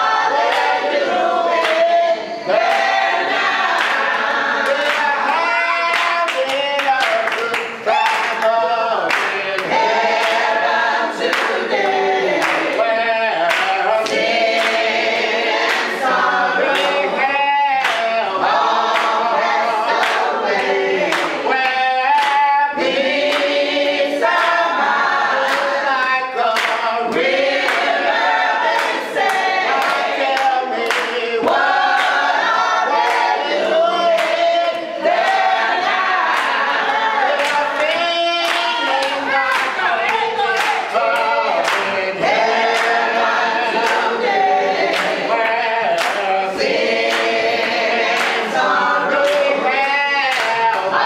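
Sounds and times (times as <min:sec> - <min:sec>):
group singing a gospel song: 0:00.0 - 0:51.0
hands clapping: 0:00.4 - 0:00.9, 0:01.5 - 0:01.9, 0:02.6 - 0:17.1, 0:17.8 - 0:51.0.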